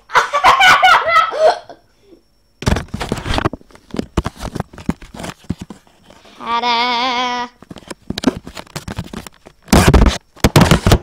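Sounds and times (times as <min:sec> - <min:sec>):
rustling and clicking handling noise: 0:02.6 - 0:06.4, 0:07.6 - 0:11.0
boy's high-pitched vocal noise: 0:06.4 - 0:07.6.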